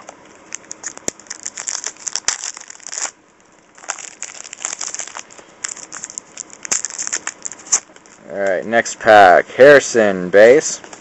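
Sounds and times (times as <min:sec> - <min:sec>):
plastic wrapper crinkling: 0:00.0 - 0:08.5.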